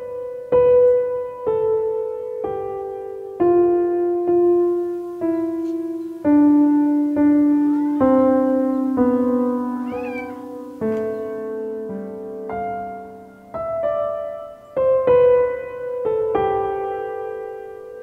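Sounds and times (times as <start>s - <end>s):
soft solo piano: 0.0s - 18.0s
cat meowing: 9.8s - 11.3s.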